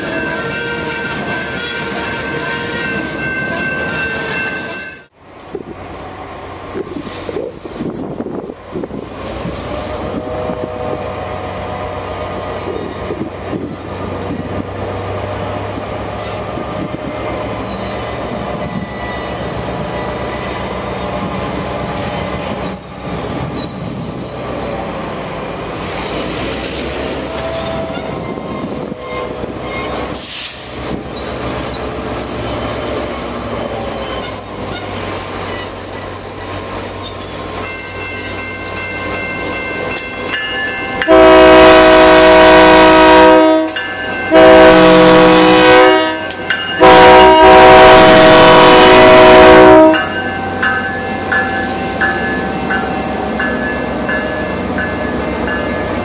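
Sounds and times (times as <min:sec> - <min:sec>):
diesel locomotive running: 0:00.0 - 0:56.0
locomotive air horn blasts: 0:10.0 - 0:11.4, 0:41.0 - 0:50.2.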